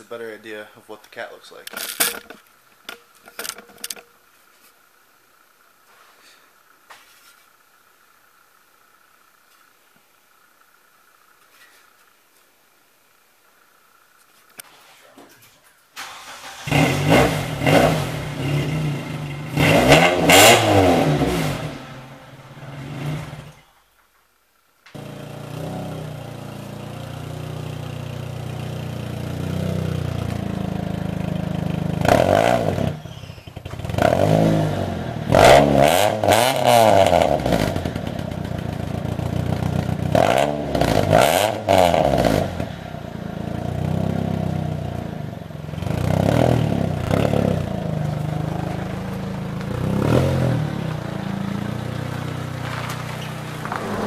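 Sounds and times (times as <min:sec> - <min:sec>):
car engine idling: 0:00.0 - 0:06.9, 0:07.5 - 0:14.6, 0:21.5 - 0:32.2, 0:37.7 - 0:40.2, 0:46.7 - 0:54.0
car engine revving: 0:16.0 - 0:23.7, 0:29.2 - 0:54.0.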